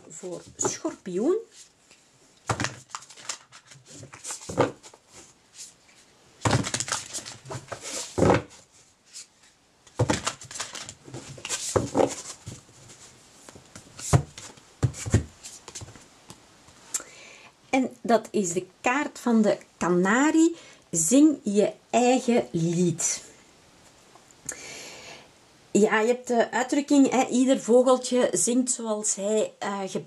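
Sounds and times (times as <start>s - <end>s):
cards rustling while shuffled: 2.5s - 16.0s.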